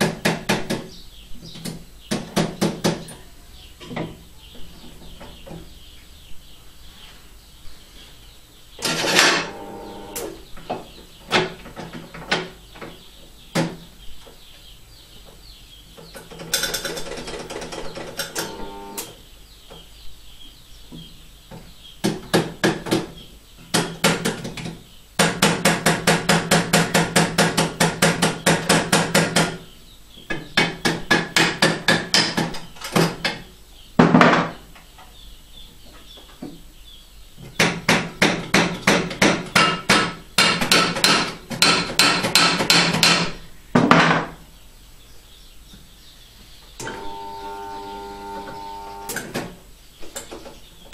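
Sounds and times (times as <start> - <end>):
hammer tapping on metal vise: 37.6 - 43.3.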